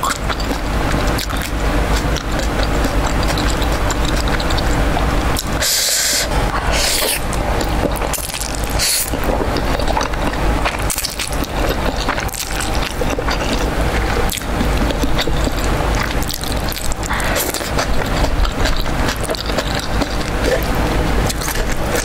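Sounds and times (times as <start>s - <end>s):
noodles slurped and chewed: 0.0s - 22.0s.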